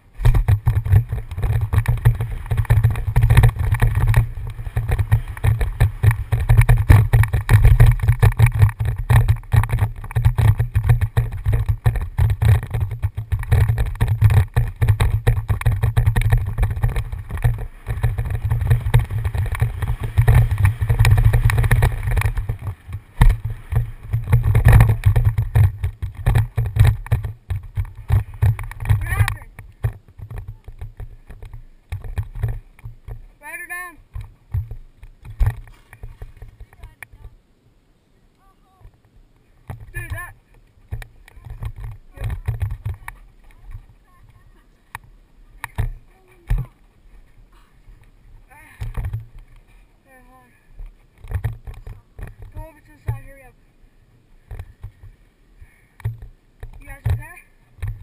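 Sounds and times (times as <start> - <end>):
wind rumble on microphone: 0.0 - 33.4, 38.7 - 58.0
bike rattling and knocking: 0.0 - 37.3, 38.9 - 46.9, 48.7 - 49.8, 51.0 - 53.5, 56.0 - 58.0.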